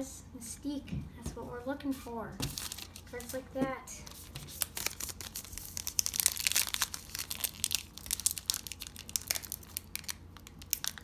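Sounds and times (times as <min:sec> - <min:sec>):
foil wrapper crinkling and tearing: 0:02.6 - 0:03.1, 0:04.2 - 0:11.0.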